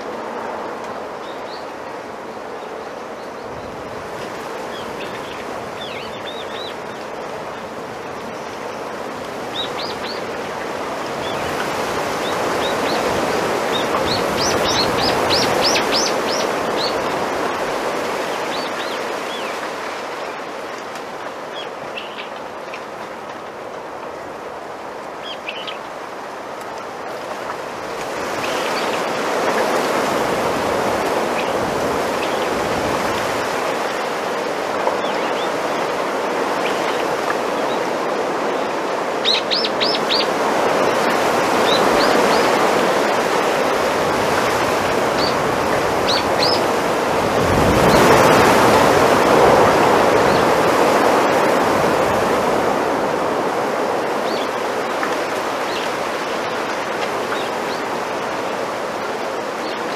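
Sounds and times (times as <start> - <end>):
wind rustling bamboo leaves: 0.0 - 59.9
small birds chirping: 12.2 - 17.2, 21.5 - 22.4, 39.2 - 42.6, 45.2 - 45.4, 46.0 - 46.7.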